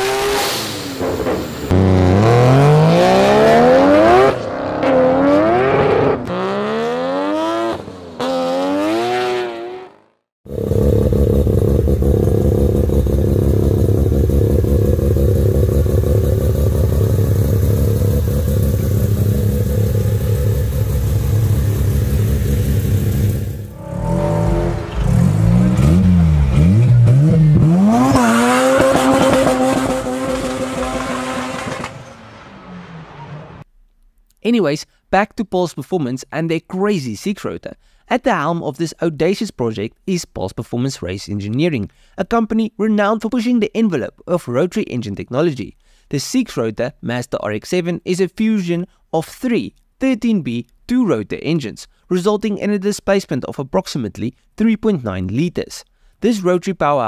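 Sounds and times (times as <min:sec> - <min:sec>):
car accelerating: 0:00.0 - 0:33.6
engine revving: 0:00.0 - 0:33.6
rotary engine running steadily: 0:10.5 - 0:23.7.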